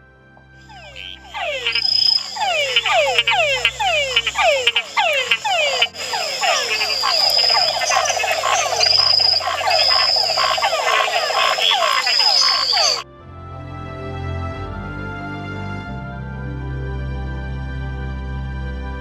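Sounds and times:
tree frogs calling: 0.6s - 13.0s
fast pulsing trill: 0.7s - 13.0s.

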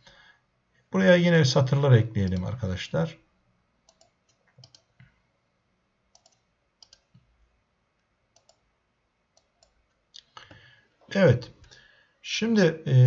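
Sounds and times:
computer mouse clicks: 3.8s - 5.2s, 6.1s - 7.3s, 8.3s - 8.7s, 9.4s - 10.6s.

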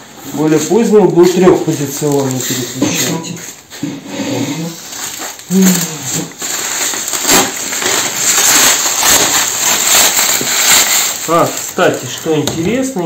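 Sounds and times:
bubble wrap crinkling: 0.0s - 13.0s.

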